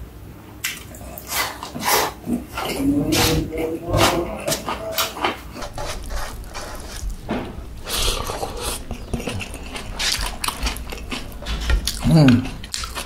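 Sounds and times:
person chewing food: 0.6 - 13.0
mouth smacks: 7.8 - 13.0.

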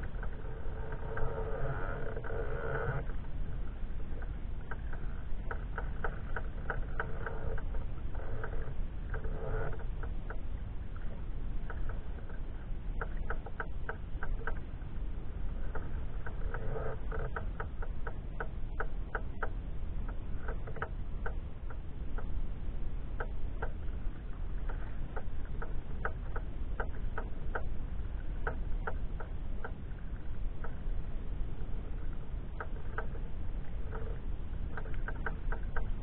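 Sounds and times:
wind rumble on microphone: 0.0 - 36.0
water lapping and dripping: 23.1 - 36.0.

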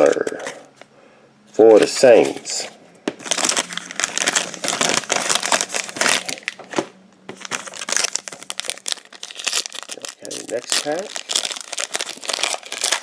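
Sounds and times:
foil wrappers crinkling: 3.2 - 6.6, 7.4 - 13.0.

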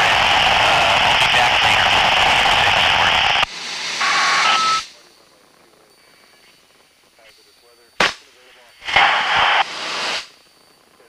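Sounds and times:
radio static hiss: 0.0 - 11.0
two-note radio beep: 4.0 - 5.2.

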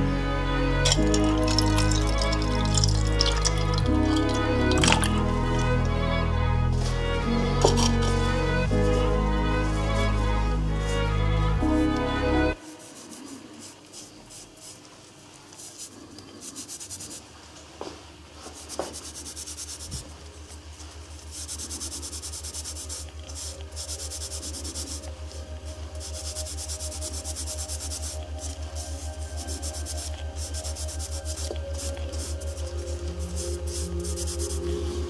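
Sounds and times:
scrubbing metal strips: 0.9 - 5.8.

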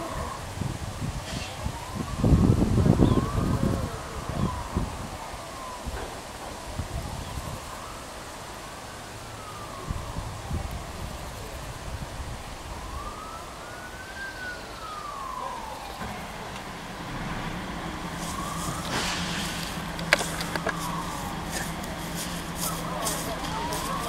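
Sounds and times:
siren wailing: 0.0 - 24.0
low engine hum: 14.9 - 24.0.

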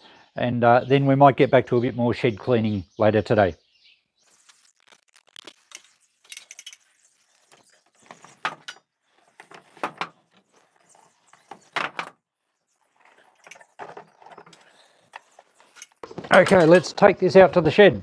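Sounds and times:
bug zapper being handled: 4.2 - 12.2.

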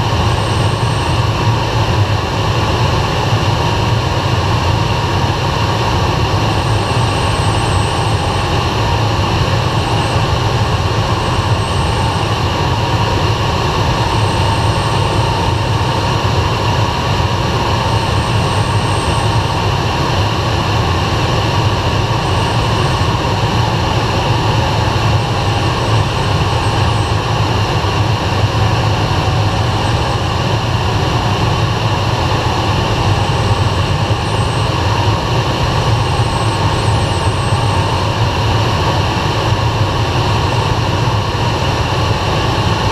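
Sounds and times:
aircraft engine drone: 0.0 - 42.9
rush of air in cockpit: 0.0 - 42.9.

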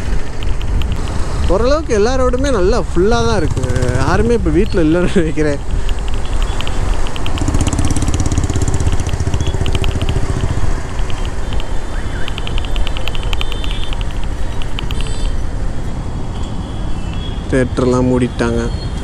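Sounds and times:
motorcycle engine running: 2.5 - 4.8, 5.7 - 15.0.

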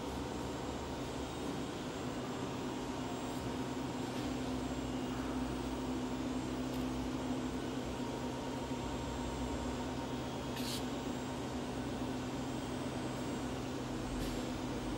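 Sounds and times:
steady mechanical hum: 0.0 - 14.9
brief high hiss: 10.6 - 10.9.

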